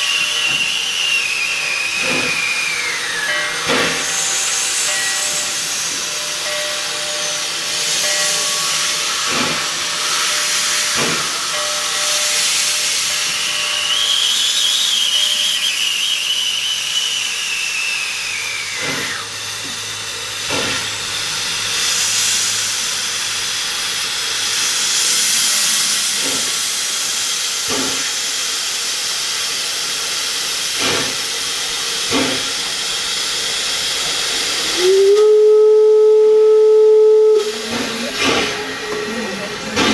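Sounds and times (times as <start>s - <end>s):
faint high whistling tone: 0.0s - 3.7s, 11.9s - 19.3s
steam hissing from locomotive: 0.0s - 39.9s.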